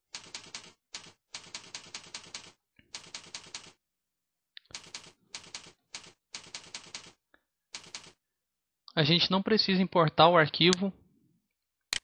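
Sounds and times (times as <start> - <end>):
computer keyboard typing: 0.1 - 3.8, 4.6 - 8.2.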